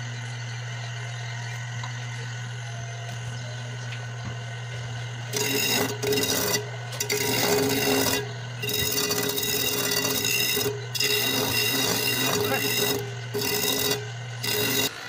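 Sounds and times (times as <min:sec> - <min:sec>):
electric sander motor humming: 0:00.0 - 0:15.0
wood block grinding on sanding disc: 0:03.0 - 0:15.0.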